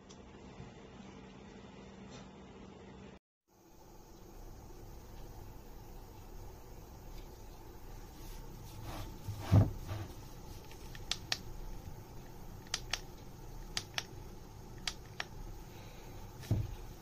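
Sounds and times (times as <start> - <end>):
humidifier button clicks: 12.6 - 13.1, 13.7 - 14.1
thump: 16.4 - 16.8.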